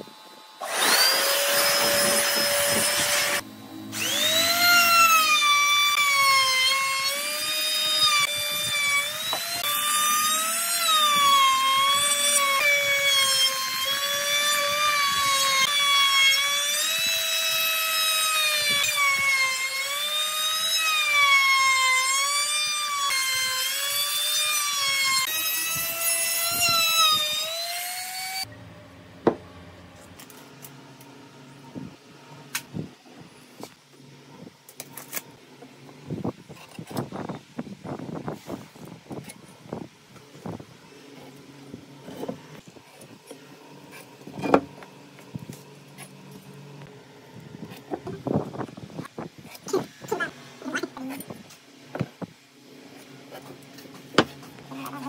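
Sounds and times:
trim router cutting wood: 0.6 - 28.5.

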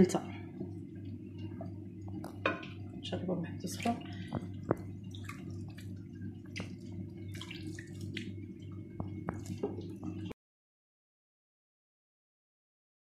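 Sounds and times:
steady low hum: 0.0 - 10.4.

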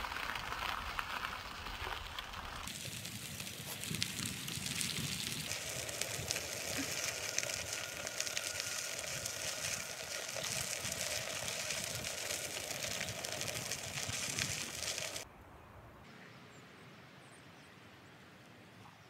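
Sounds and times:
wind rumbling on microphone: 0.0 - 15.2
bicycle tyres on gravel: 0.0 - 15.3.

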